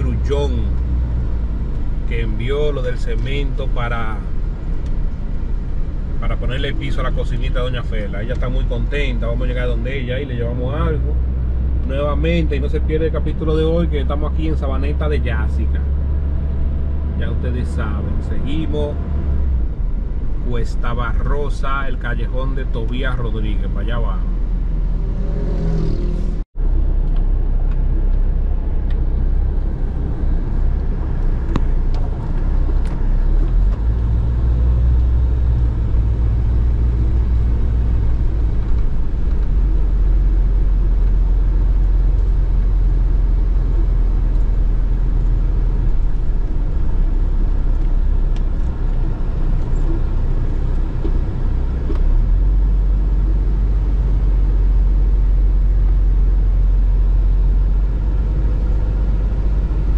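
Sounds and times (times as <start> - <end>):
vehicle road rumble: 0.0 - 59.9.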